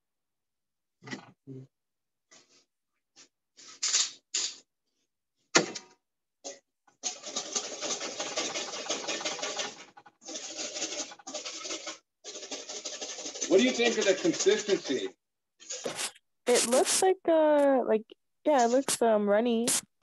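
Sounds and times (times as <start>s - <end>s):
whisk beating in metal bowl: 7.0s - 15.1s.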